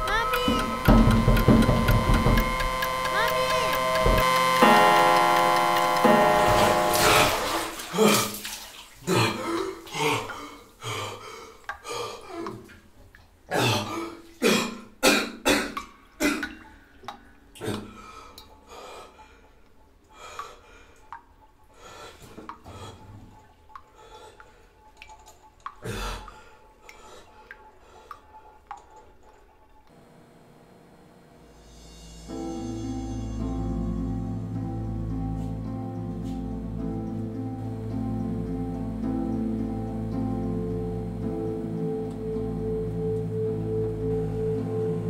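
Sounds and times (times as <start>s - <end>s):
water dripping: 0.0s - 30.0s, 34.4s - 45.0s.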